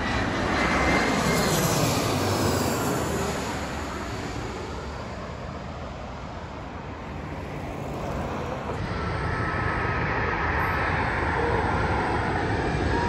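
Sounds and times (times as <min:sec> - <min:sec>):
jet airliner engine noise: 0:00.0 - 0:13.0
faint high whine: 0:06.4 - 0:13.0.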